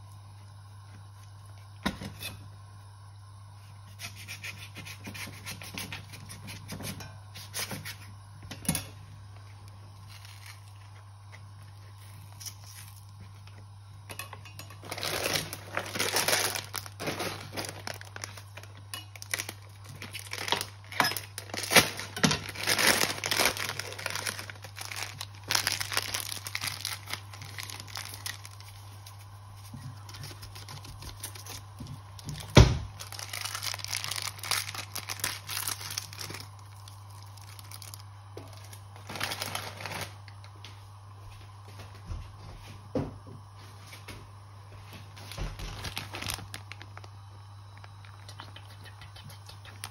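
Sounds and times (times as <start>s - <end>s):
steady low hum: 0.0s - 49.9s
plastic sachets crinkling and tearing: 10.0s - 13.6s, 14.8s - 40.4s, 45.2s - 48.4s.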